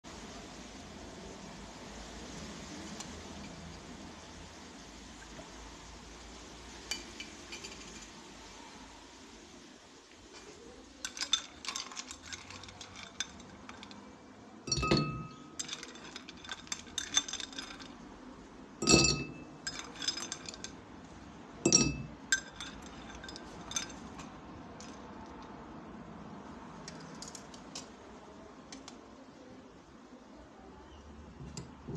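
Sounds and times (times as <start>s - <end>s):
objects clinking in a glass: 6.9s - 8.2s, 11.0s - 14.1s, 14.7s - 18.0s, 18.8s - 20.8s, 21.6s - 25.0s
heavy knocks ringing a glass: 14.7s - 15.4s, 18.8s - 19.4s, 21.7s - 22.1s.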